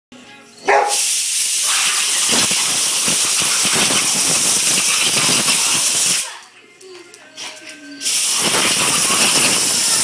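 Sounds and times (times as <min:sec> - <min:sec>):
compressed air hissing: 0:00.9 - 0:06.3, 0:08.0 - 0:10.0.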